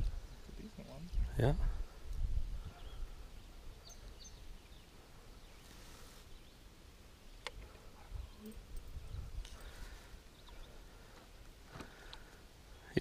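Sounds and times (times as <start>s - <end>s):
wind rumbling on microphone: 0.0s - 4.9s, 7.7s - 10.7s
faint bird chirps: 2.4s - 11.1s.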